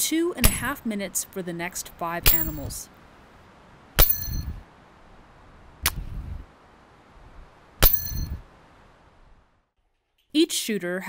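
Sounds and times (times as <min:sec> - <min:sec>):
bullets striking steel targets: 0:02.2 - 0:02.8, 0:04.0 - 0:04.6, 0:07.8 - 0:08.4.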